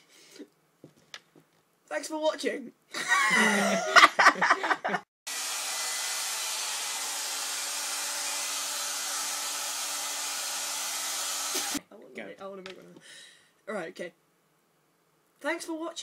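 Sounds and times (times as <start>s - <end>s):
people laughing: 3.0s - 5.1s
hair dryer blowing: 5.3s - 11.8s.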